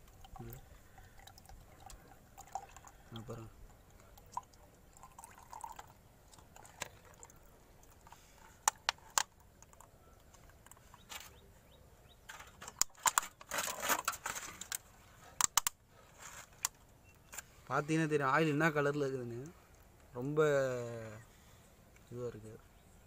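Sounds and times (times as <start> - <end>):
oil pouring into plastic bottle: 0.0 - 8.2
sharp clicks and rustling: 5.6 - 11.5, 12.3 - 17.6.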